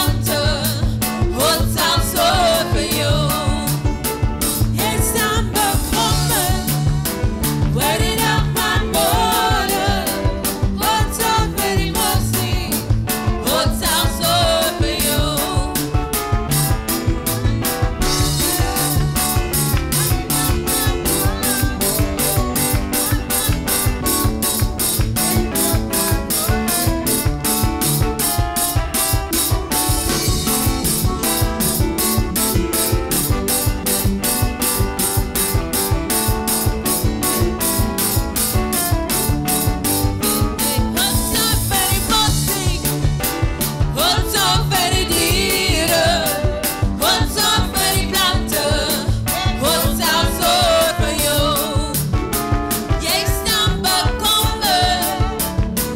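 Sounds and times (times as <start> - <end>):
person singing: 0.0 - 4.1, 4.8 - 16.0, 18.0 - 24.2, 40.6 - 43.1, 44.0 - 52.1, 53.0 - 55.6
drum kit beat: 0.0 - 55.9
keyboard chords: 15.4 - 41.0.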